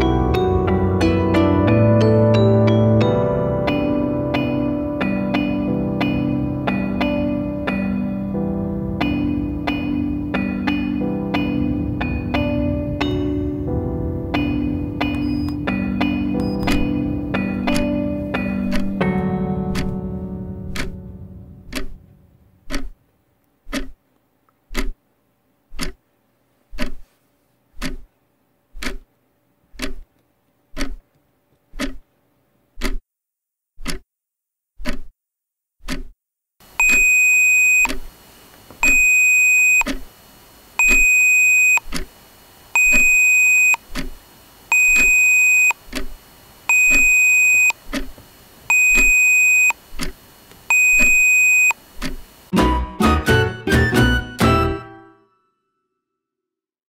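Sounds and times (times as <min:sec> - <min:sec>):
clock ticking: 0:03.7 - 0:23.0, 0:23.6 - 0:24.0, 0:24.7 - 0:25.0, 0:25.7 - 0:26.0, 0:26.7 - 0:27.1, 0:27.7 - 0:28.1, 0:28.7 - 0:29.1, 0:29.7 - 0:30.1, 0:30.7 - 0:31.0, 0:31.7 - 0:32.0, 0:32.8 - 0:33.0, 0:33.8 - 0:34.0, 0:34.8 - 0:35.1, 0:35.8 - 0:36.1, 0:36.8 - 0:37.2, 0:38.8 - 0:39.1, 0:39.8 - 0:40.1, 0:40.8 - 0:42.1, 0:42.8 - 0:52.3
high alarm beep: 0:14.4 - 0:17.0, 0:36.8 - 0:37.9, 0:38.8 - 0:39.9, 0:40.8 - 0:41.8, 0:42.8 - 0:43.8, 0:44.7 - 0:45.8, 0:46.7 - 0:47.8, 0:48.7 - 0:49.8, 0:50.7 - 0:51.8.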